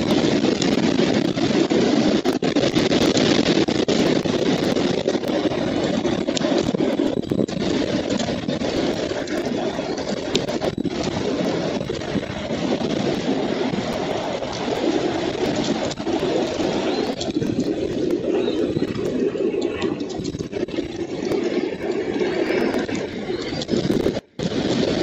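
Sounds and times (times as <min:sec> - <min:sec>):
wind rumble on microphone: 0:00.0 - 0:25.0
nest straw rustling and clicks: 0:13.9 - 0:24.2.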